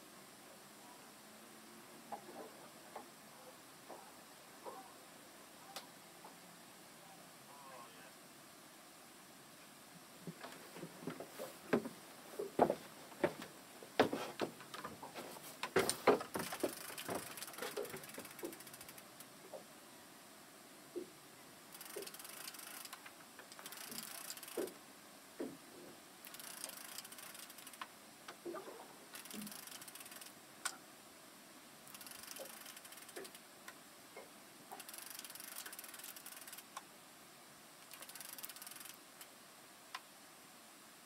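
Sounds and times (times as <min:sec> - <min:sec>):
fishing reel cranking: 0:16.4 - 0:19.0, 0:21.7 - 0:24.7, 0:26.2 - 0:27.9, 0:29.1 - 0:30.4, 0:31.9 - 0:33.4, 0:34.7 - 0:36.8, 0:37.8 - 0:39.0.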